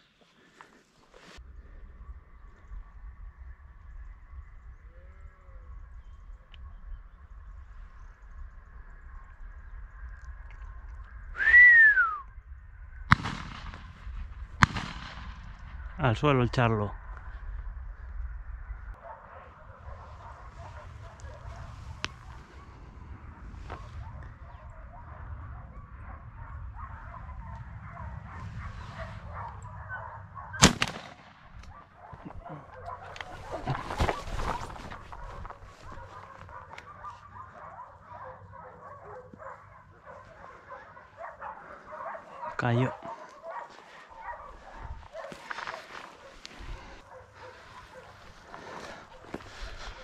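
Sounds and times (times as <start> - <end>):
person whistling rising note: 11.4 - 12.3
steady low rumble: 12.3 - 37.0
shotgun shot with echo: 13.1 - 15.6, 30.6 - 31.6
sharp crack: 13.1 - 15.8, 30.6 - 31.8.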